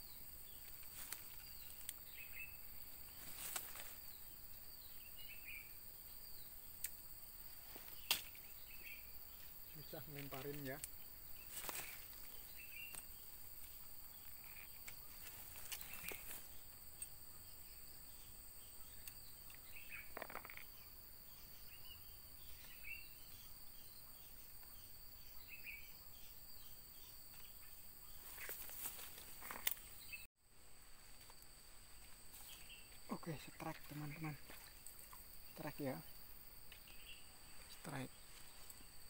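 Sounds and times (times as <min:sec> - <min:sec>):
insects droning: 0:00.0 - 0:39.0
faint clicks or rustles: 0:03.2 - 0:04.0, 0:28.2 - 0:29.9.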